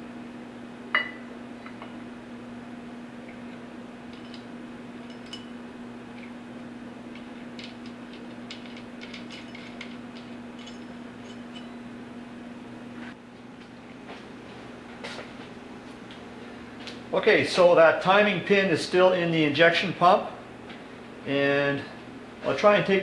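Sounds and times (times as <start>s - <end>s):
steady low hum: 0.0s - 23.0s
metal gears clinking: 7.6s - 11.8s.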